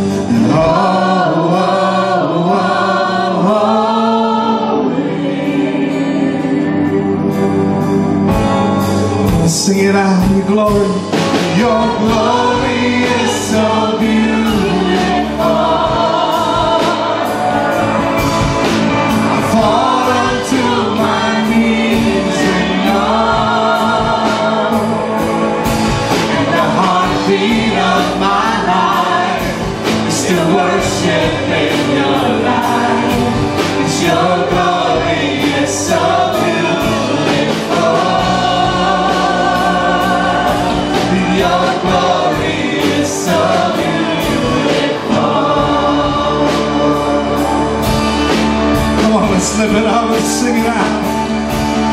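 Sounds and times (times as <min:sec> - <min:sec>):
man singing lead: 0:00.0 - 0:05.0, 0:09.0 - 0:25.4, 0:26.0 - 0:48.0, 0:48.6 - 0:51.5
backing singers: 0:00.0 - 0:51.9
electric guitars: 0:00.0 - 0:51.9
keyboard: 0:00.0 - 0:51.9.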